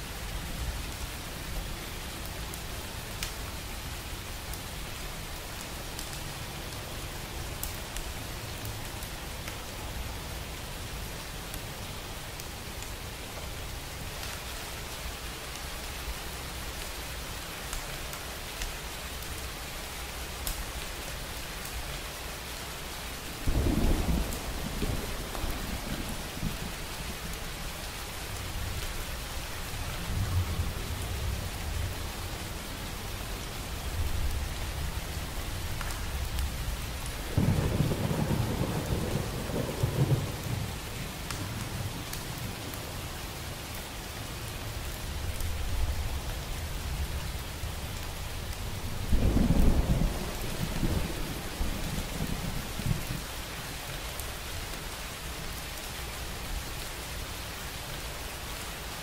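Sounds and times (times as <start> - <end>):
steady rain: 0.0 - 59.0
thunder rumbling: 37.2 - 40.9, 48.4 - 53.2.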